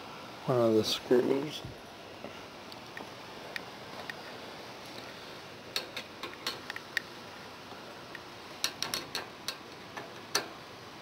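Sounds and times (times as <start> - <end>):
sharp clicks and taps of fan parts: 5.7 - 7.1, 8.1 - 10.6.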